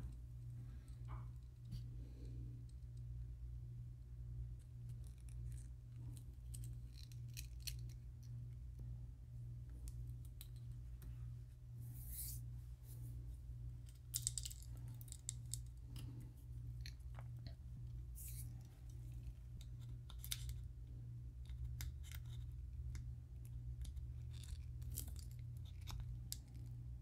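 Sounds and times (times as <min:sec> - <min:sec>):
steady low hum: 0:00.0 - 0:27.0
hands handling lure parts: 0:13.8 - 0:20.7.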